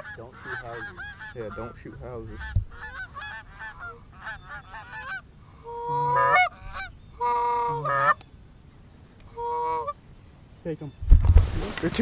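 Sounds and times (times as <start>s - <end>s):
goose honking: 0.0s - 8.2s, 9.3s - 10.0s.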